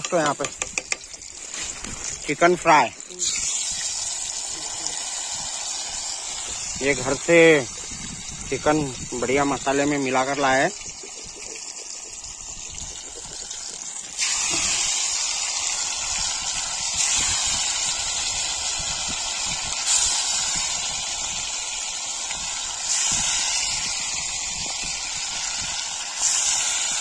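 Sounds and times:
chicken deep-frying in oil: 0.0s - 27.0s.

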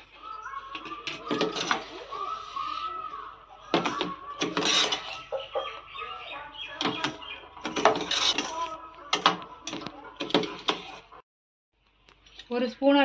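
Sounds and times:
spoon scraping metal pan: 7.7s - 8.7s.

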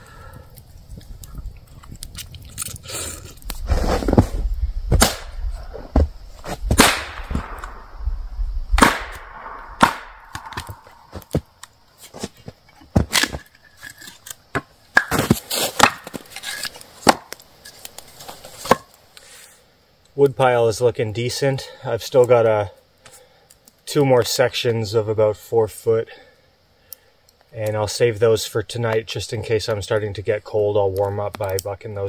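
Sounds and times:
firewood being chopped: 3.4s - 7.8s, 8.8s - 19.0s.

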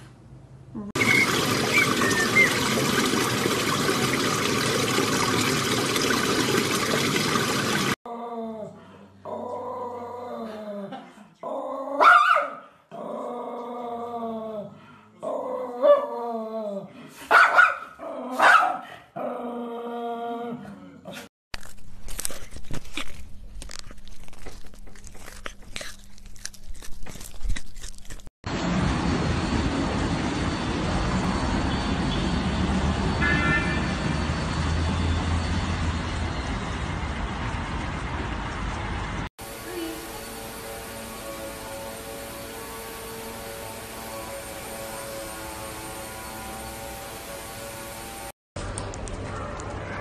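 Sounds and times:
puppy barking and yipping: 1.0s - 2.7s, 12.0s - 12.6s, 17.3s - 18.8s
car wash brush rushing: 1.0s - 8.0s.

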